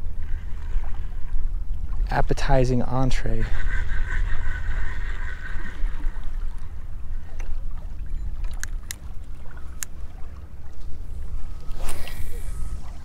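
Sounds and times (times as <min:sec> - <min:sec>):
small waves lapping at shore: 0:00.0 - 0:13.0
wind rumbling on microphone: 0:03.4 - 0:13.0.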